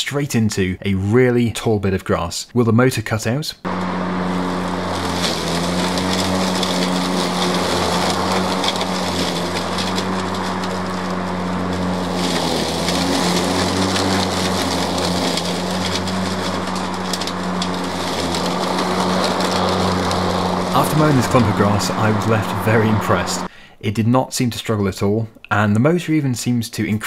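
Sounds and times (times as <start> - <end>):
electric lawnmower humming: 3.7 - 23.5
grass clippings crackling: 3.7 - 23.5.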